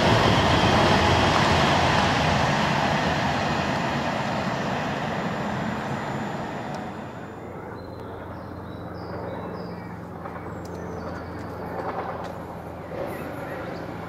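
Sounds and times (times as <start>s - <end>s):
train passing: 0.0s - 8.6s
distant train engine hum: 0.0s - 14.0s.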